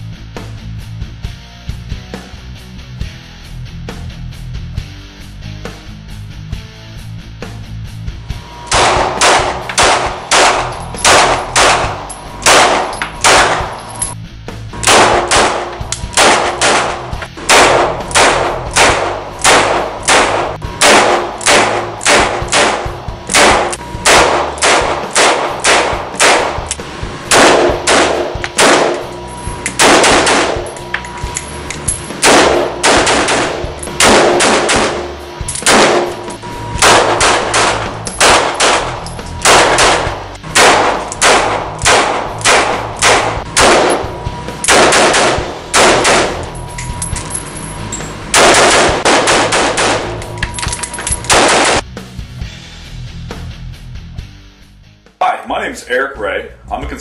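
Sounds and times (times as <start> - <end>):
handgun shots echoing indoors: 8.7 - 14.2, 14.8 - 47.4, 48.2 - 51.9.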